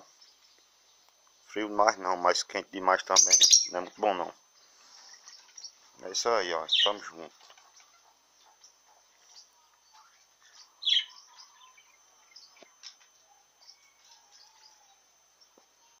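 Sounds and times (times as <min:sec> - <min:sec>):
budgerigars chirping and chattering: 0:02.8 - 0:04.3, 0:04.9 - 0:15.0.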